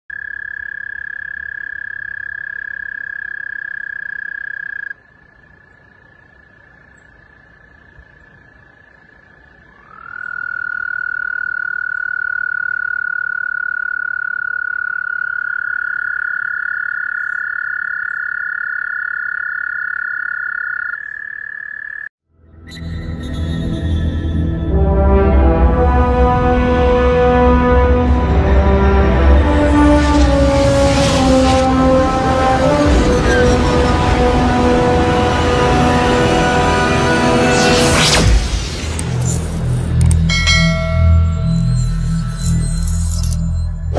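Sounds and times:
toads trilling: 0.1s - 22.1s.

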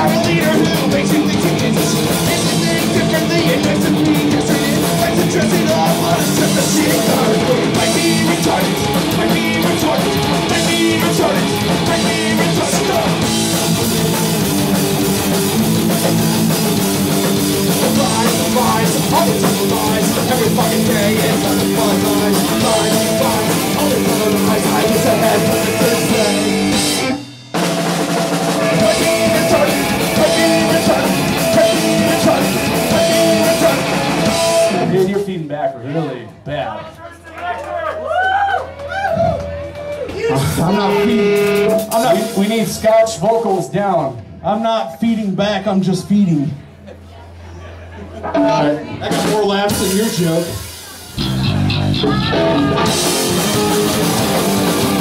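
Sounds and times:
electric guitar: 0.0s - 35.1s, 38.9s - 42.4s, 48.2s - 55.0s
drum kit: 0.0s - 35.5s, 39.0s - 44.4s, 48.2s - 55.0s.

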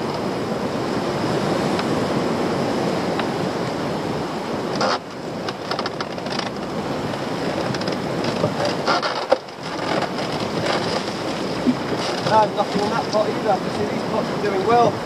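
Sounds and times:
choppy sea washing: 0.0s - 15.0s
wind buffeting microphone: 0.0s - 15.0s.

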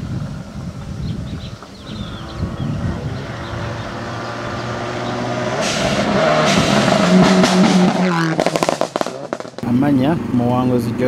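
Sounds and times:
rally car engine at full speed: 1.6s - 11.0s
sharp cracks from exhaust: 5.6s - 9.7s.

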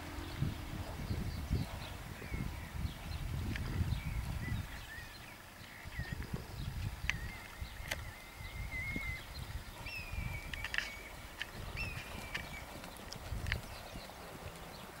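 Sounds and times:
birds chirping: 0.0s - 15.0s
hoofbeats on sand: 10.6s - 15.0s.

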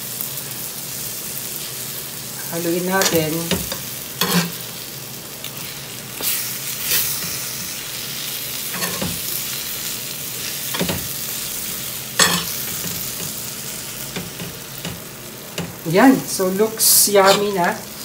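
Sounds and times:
food sizzling on hot metal plate: 0.0s - 18.0s
spoon scraping metal plate: 12.2s - 12.5s, 17.2s - 17.6s.

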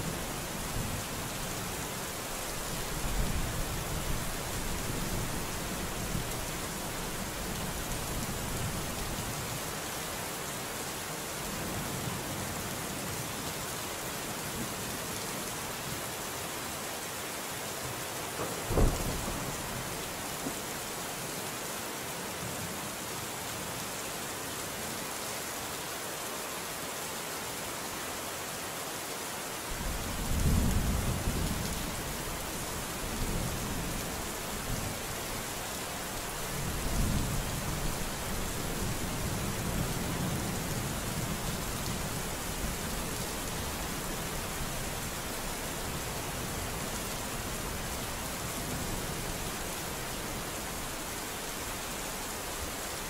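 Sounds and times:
heavy rain hissing: 0.0s - 11.1s, 16.5s - 21.9s, 29.6s - 53.0s
sharp thunderclap: 18.6s - 19.7s
low rumble of thunder: 18.6s - 20.0s, 29.7s - 35.5s.

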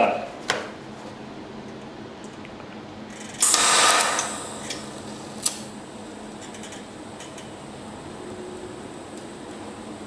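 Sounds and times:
welding arc hissing: 3.2s - 6.4s
sharp click: 3.4s - 5.7s.

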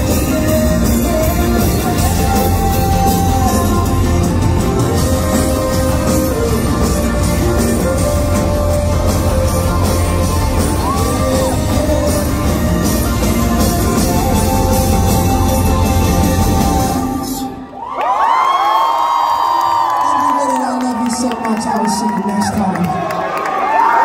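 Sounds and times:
live pop-rock band playing: 0.0s - 17.8s
singer holding long notes: 0.0s - 18.0s.

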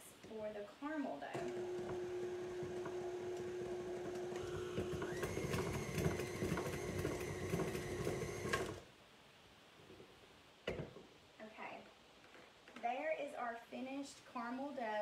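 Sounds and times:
mixer high whine: 1.4s - 8.8s
stand mixer humming: 1.4s - 8.8s.

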